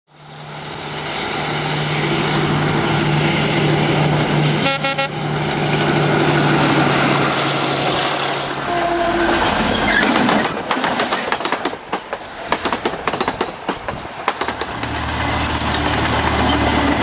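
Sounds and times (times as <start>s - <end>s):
diesel locomotive droning: 0.1s - 10.7s, 14.5s - 17.0s
locomotive horn toot: 4.6s - 5.2s, 8.6s - 9.8s.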